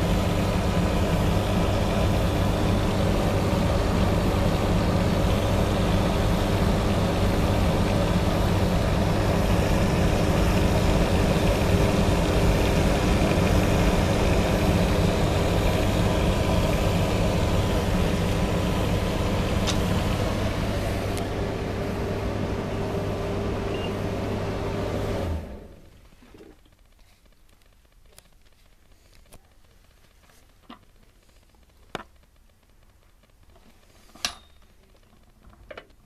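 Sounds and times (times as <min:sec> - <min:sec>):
tumble dryer running: 0:00.0 - 0:26.1.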